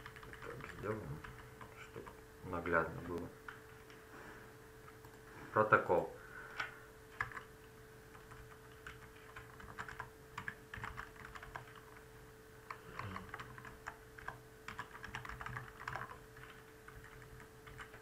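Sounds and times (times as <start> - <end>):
keyboard typing: 0.0 - 2.2, 6.5 - 7.5, 8.1 - 12.1, 12.7 - 18.0
faint steady hum: 0.0 - 18.0.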